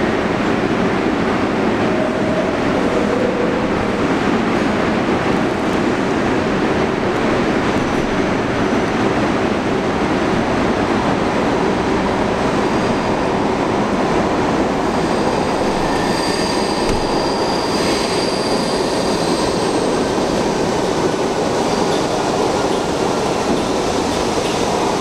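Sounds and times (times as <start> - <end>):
train wheels rumbling on rails: 0.0 - 25.0
high wheel squeal: 14.8 - 20.1.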